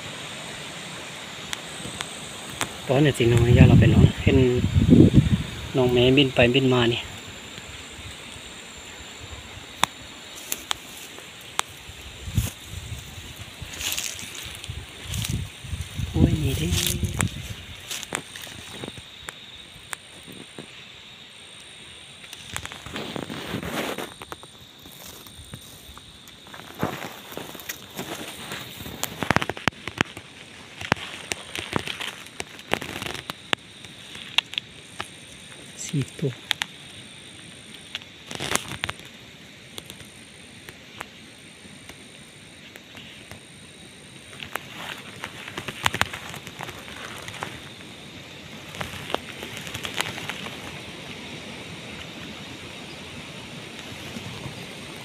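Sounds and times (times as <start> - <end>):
dry grass rustling and crackling: 0.0 - 55.0
high insect trill: 0.0 - 55.0
stalks snapping: 9.8 - 13.0, 13.7 - 20.6, 22.2 - 37.0, 37.8 - 39.2, 44.4 - 47.8, 48.6 - 50.8.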